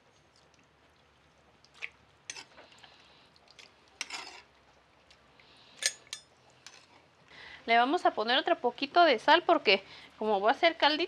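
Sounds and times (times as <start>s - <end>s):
metal spoon clinking on glass jar: 5.8s - 6.2s.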